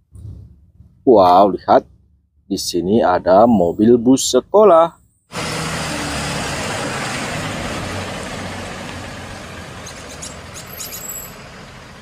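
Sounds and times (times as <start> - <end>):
low engine hum: 5.3 - 12.0
faint high squeaks: 9.8 - 11.4.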